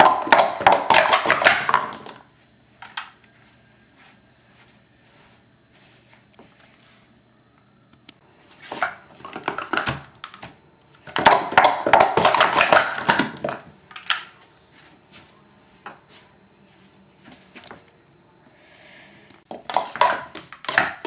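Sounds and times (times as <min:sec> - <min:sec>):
plastic cups clattering: 0:00.0 - 0:03.2, 0:08.5 - 0:14.4, 0:19.5 - 0:21.0.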